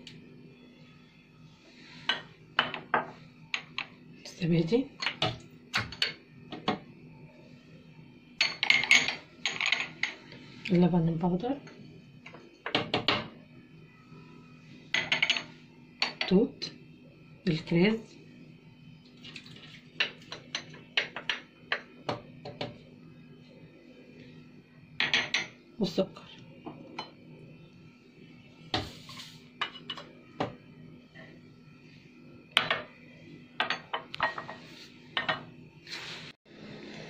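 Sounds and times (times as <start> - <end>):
faint steady hum: 0.0 - 37.0.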